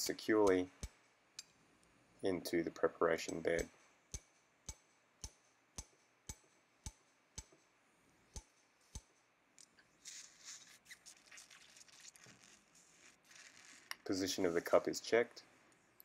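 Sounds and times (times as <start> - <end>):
mallet tapping metal impactor: 0.4 - 1.6, 3.2 - 7.7, 8.3 - 9.2
faint rustling: 9.6 - 16.0.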